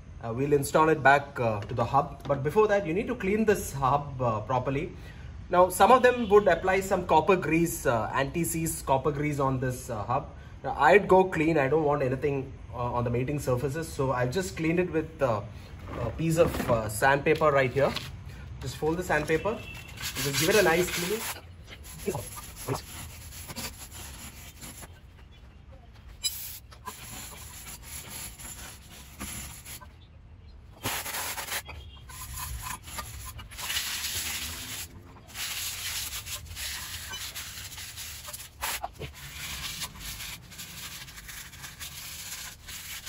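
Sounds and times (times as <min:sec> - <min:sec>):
sandpaper rubbing metal: 0:17.8 - 0:25.0, 0:26.2 - 0:29.9, 0:30.8 - 0:43.0.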